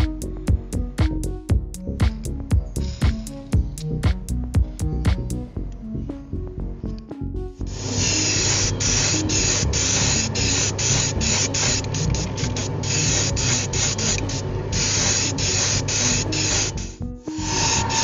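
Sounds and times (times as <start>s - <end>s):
spray paint hissing in bursts: 1.8s - 5.4s, 7.6s - 18.0s.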